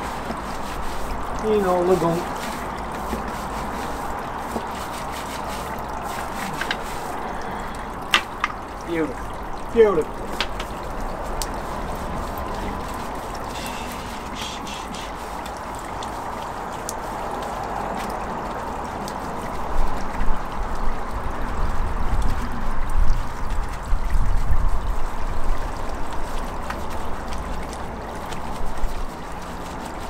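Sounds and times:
brush scrubbing wet wheel: 0.0s - 20.4s, 23.4s - 30.0s.

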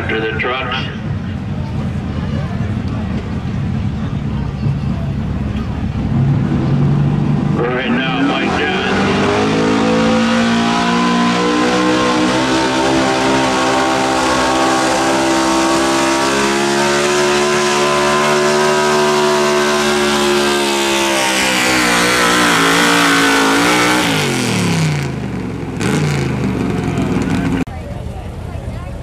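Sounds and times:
truck engine running under load: 0.0s - 7.7s.

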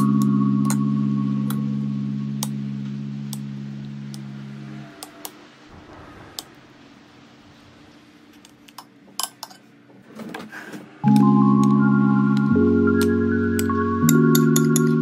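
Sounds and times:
background music: 0.0s - 5.0s, 11.0s - 15.0s.

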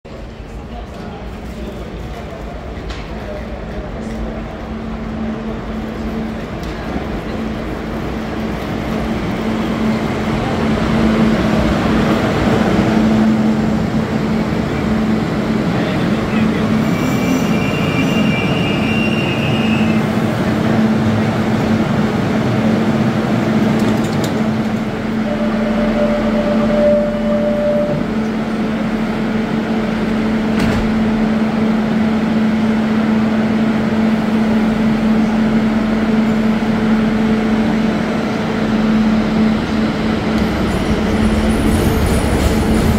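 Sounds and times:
crowd chatter: 0.1s - 29.1s
train arriving: 0.1s - 42.9s
train electrical hum: 0.1s - 42.9s
low electronic tone: 25.2s - 28.6s.

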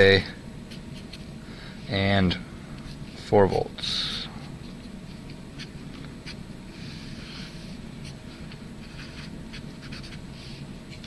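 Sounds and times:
low room hum: 0.0s - 11.0s
marker drawing on paper: 5.6s - 11.0s.

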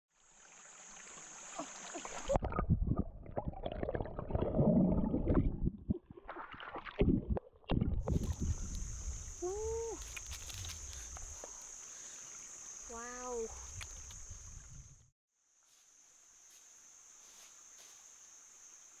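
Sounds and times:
high-pitched insect drone: 8.1s - 15.0s.

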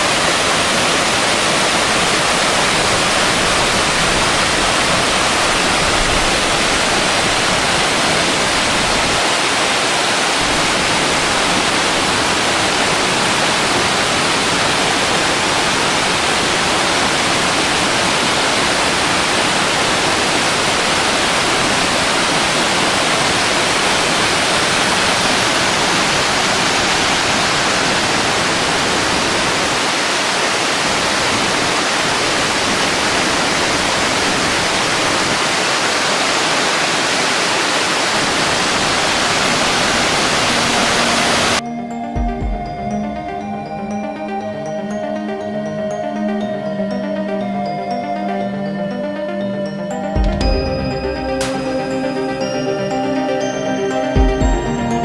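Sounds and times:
waterfall crashing onto rocks: 0.0s - 41.6s.

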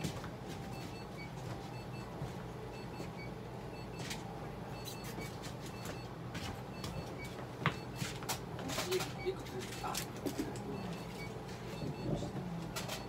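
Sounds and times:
low machine hum: 0.0s - 13.0s.

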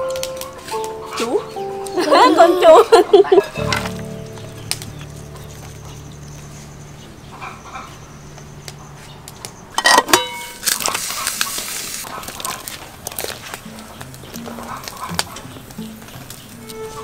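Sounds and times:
metal pot lid clanking: 9.8s - 10.6s
boiling water hissing: 10.6s - 17.0s.

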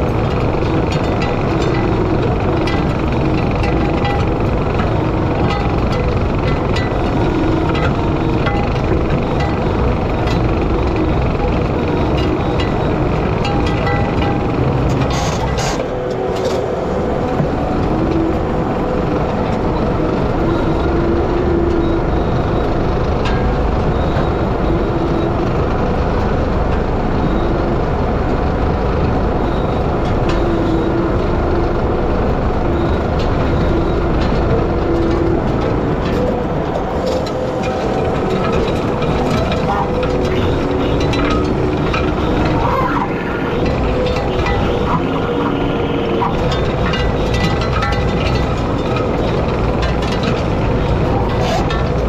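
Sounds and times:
diesel engine under load: 0.0s - 52.0s
power rake drum spinning through soil: 32.8s - 52.0s.

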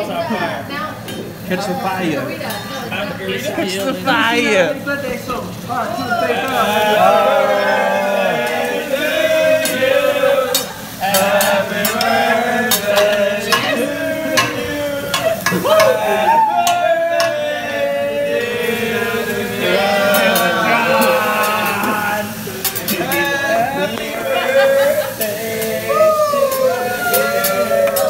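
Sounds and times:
griddle sizzling: 0.0s - 28.0s
people singing together: 5.9s - 28.0s.

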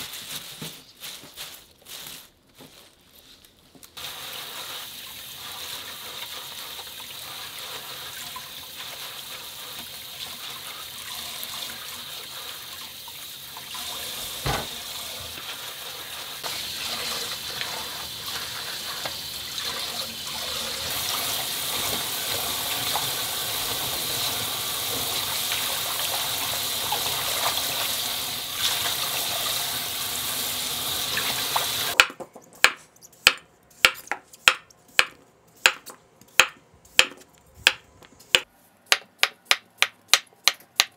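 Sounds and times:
tap water running into sink: 6.7s - 15.8s, 16.5s - 32.0s
knock: 14.4s - 14.7s.

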